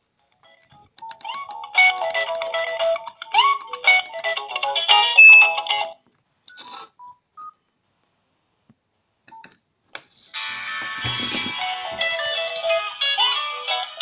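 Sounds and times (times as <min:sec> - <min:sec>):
mobile phone ringtone melody: 0:04.5 - 0:05.9, 0:10.4 - 0:14.0.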